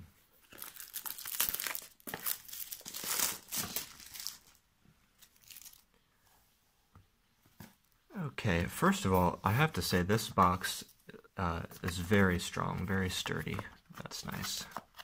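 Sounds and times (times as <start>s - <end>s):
plastic wrapping tearing and crumpling: 0.5s - 4.6s, 5.2s - 5.8s.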